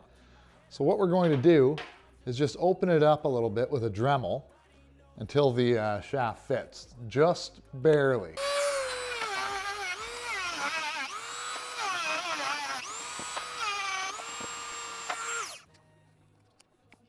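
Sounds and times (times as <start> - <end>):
rotary tool grinding metal: 8.4 - 15.7.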